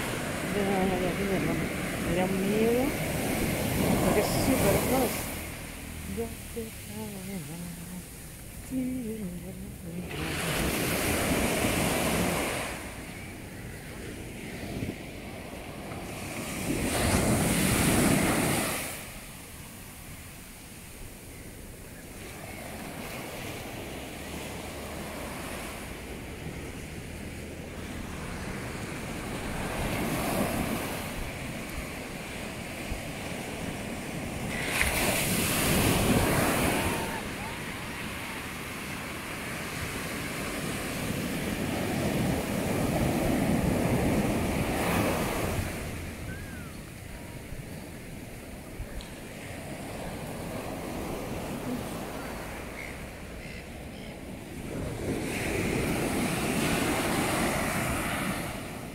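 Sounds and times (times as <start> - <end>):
wave breaking on beach: 0.0 - 53.4, 54.3 - 58.9
person's voice: 0.5 - 3.0, 3.9 - 5.3, 6.1 - 10.7.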